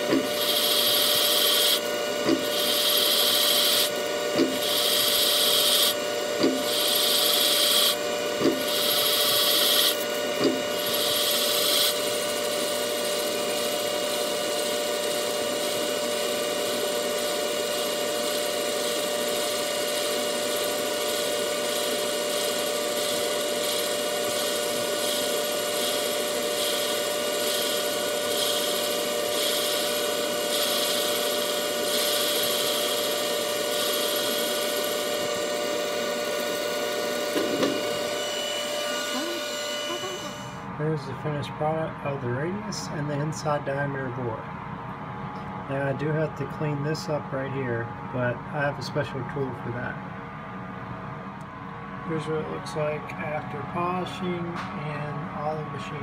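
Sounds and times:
lathe cutting hiss: 0.0 - 13.2, 16.6 - 40.7
lathe humming: 0.0 - 40.8.

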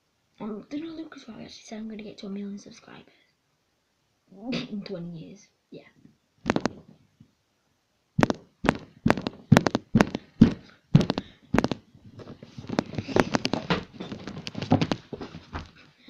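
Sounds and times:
handling knocks on microphone: 6.5 - 6.8, 8.2 - 11.8
rubbing against recording device: 6.5 - 7.0, 8.2 - 16.0.

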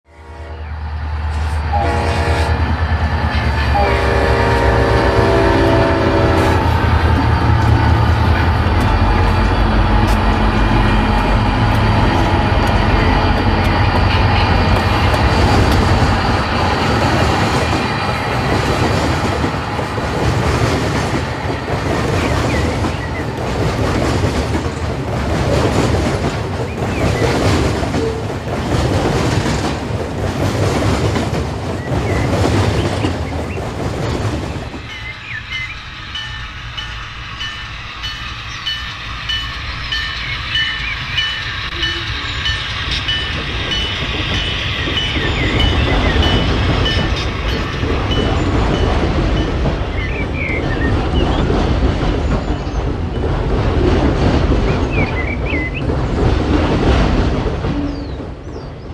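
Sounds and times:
clickety-clack of wheels: 6.7 - 34.8, 41.7 - 58.9.

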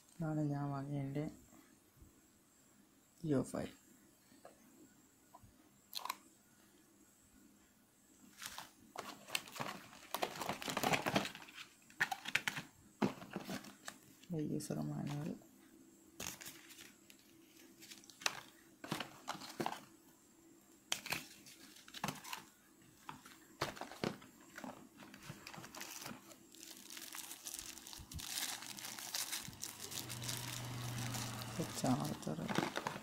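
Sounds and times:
plastic packaging and paper crinkling: 8.3 - 14.3, 16.2 - 19.9, 20.9 - 33.0.

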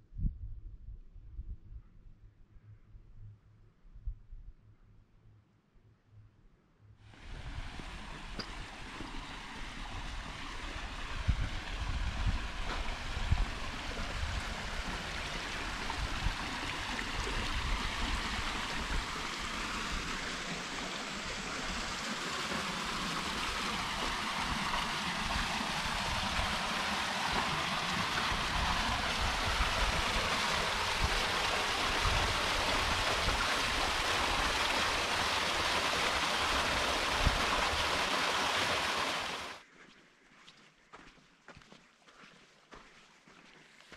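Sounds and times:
waterfall splashing into pool: 7.2 - 39.6.

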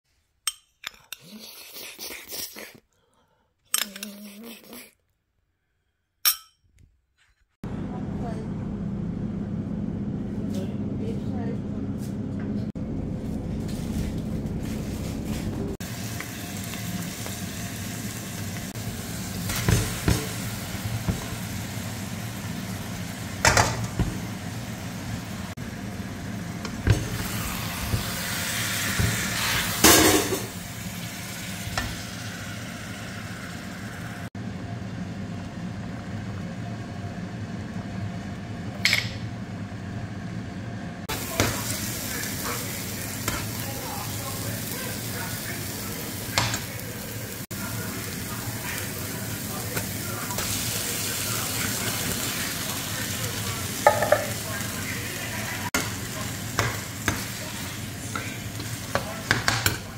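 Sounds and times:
meat and onions sizzling: 14.5 - 34.4, 41.0 - 59.9.

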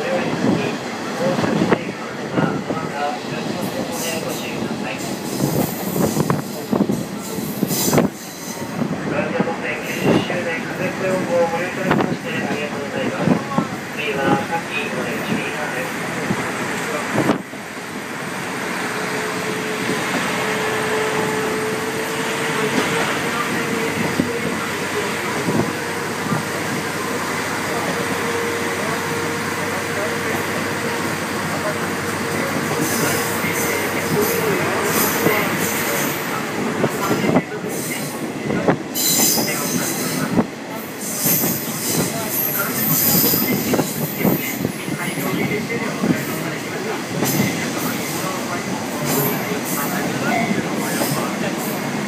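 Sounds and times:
railcar wheels and air rumble: 0.0 - 52.0
rail-joint clacks: 18.5 - 28.2.

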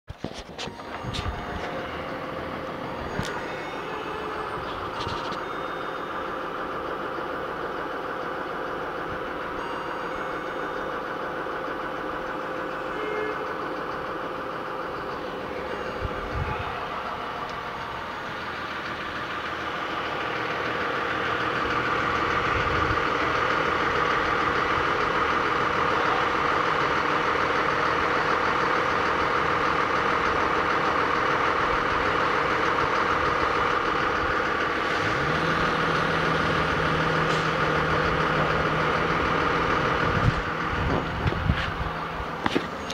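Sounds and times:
diesel engines running: 0.1 - 42.9.

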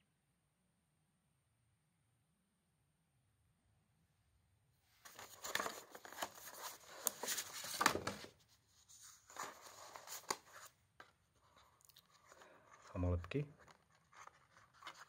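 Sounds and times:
paper rustling and crinkling: 5.0 - 15.0.

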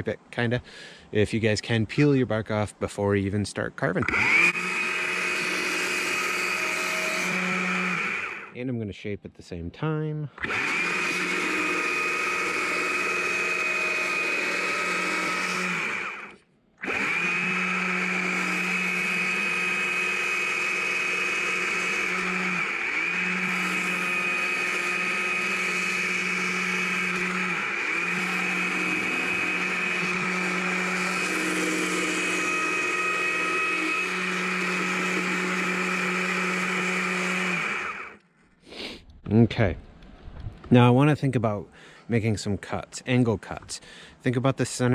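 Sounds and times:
chainsaw cutting log: 4.0 - 8.6, 10.4 - 38.2.

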